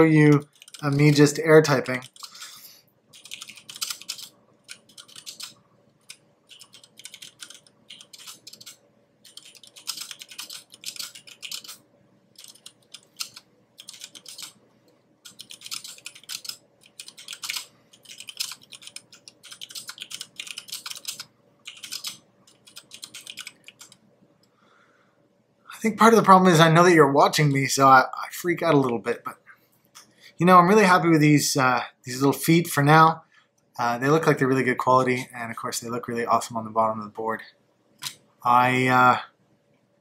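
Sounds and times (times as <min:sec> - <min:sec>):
mechanical keyboard typing: 0:00.2 - 0:01.2, 0:01.8 - 0:02.4, 0:03.1 - 0:14.6, 0:15.2 - 0:24.0.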